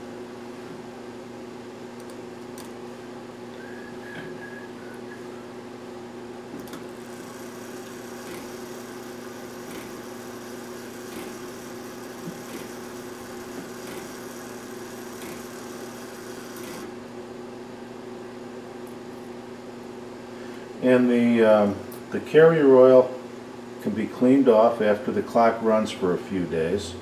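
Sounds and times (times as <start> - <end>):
clock movement whirring: 6.6 - 16.9.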